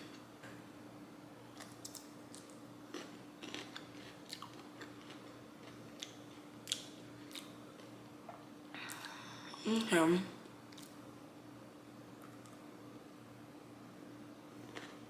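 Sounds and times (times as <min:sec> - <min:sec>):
low steady hum: 0:00.0 - 0:15.0
person chewing crunchily: 0:01.6 - 0:08.0, 0:10.7 - 0:11.0, 0:14.7 - 0:15.0.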